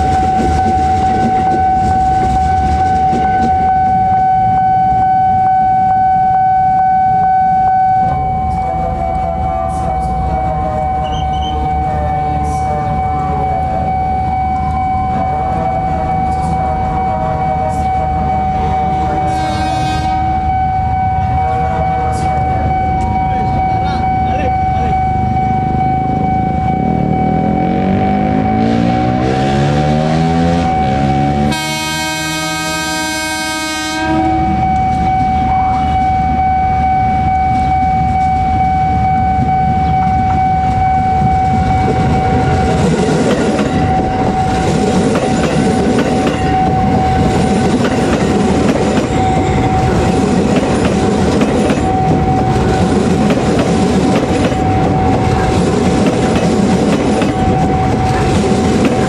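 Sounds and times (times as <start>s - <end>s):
train wheels clattering on rails: 0.0s - 3.9s, 37.5s - 59.0s
train horn: 0.0s - 25.0s, 27.0s - 42.5s
steady high tone: 0.0s - 59.0s.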